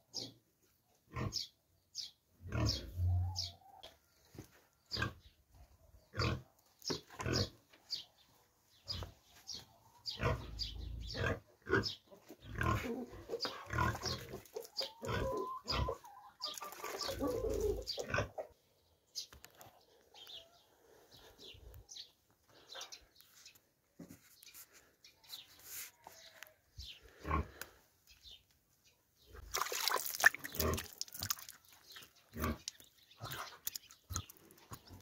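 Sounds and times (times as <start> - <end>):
farm animals calling: 1.1 - 8.1, 8.8 - 19.3, 24.5 - 28.3, 29.2 - 35.0.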